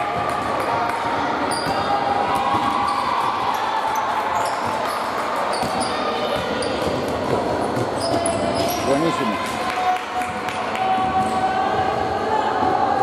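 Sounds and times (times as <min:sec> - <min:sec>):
sneakers squeaking: 0:01.5 - 0:03.1, 0:04.0 - 0:09.1
voices in background: 0:08.0 - 0:09.8.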